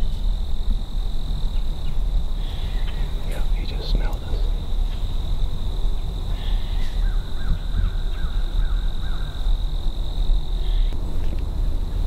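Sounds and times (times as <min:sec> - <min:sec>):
constant low rumble: 0:00.0 - 0:12.0
high-pitched insect drone: 0:00.0 - 0:12.0
bird calling: 0:01.5 - 0:05.2, 0:06.0 - 0:09.6, 0:10.6 - 0:11.4.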